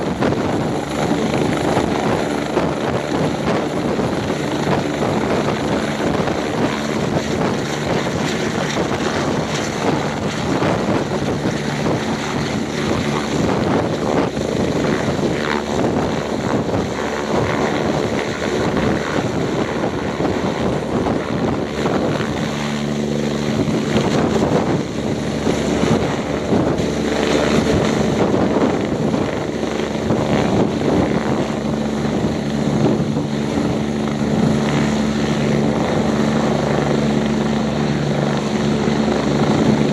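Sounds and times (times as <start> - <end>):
helicopter hovering: 0.0 - 39.9.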